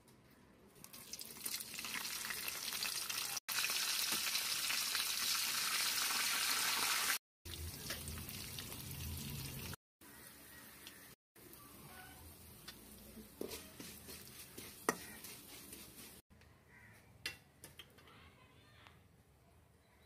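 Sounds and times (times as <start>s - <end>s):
hot oil sizzling: 0.8s - 16.2s.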